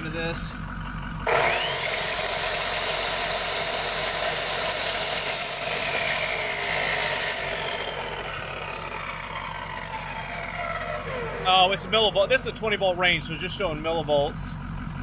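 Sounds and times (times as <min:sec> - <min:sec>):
diesel truck engine idling: 0:00.0 - 0:15.0
electric chop saw motor whining: 0:01.2 - 0:12.4.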